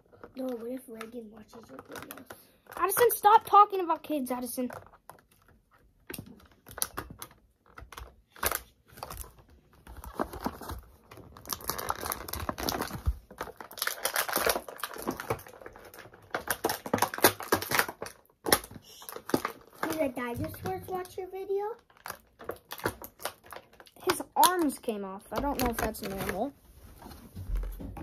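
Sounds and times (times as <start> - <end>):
plastic packaging crinkling: 0.0 - 3.6, 4.4 - 27.9.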